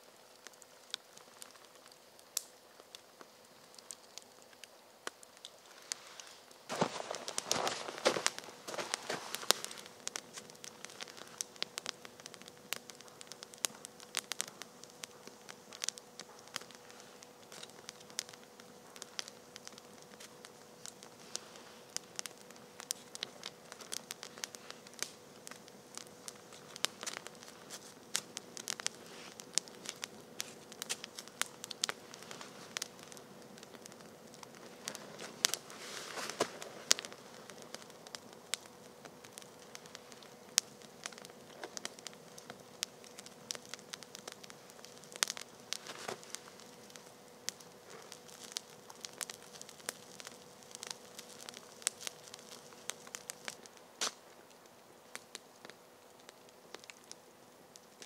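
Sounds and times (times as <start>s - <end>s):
campfire crackling and popping: 0.0s - 58.0s
rustling: 5.5s - 15.8s, 20.8s - 54.3s.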